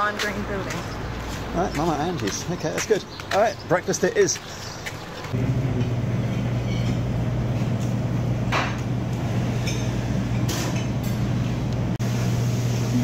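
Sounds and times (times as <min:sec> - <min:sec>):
low machine hum: 0:04.5 - 0:13.0.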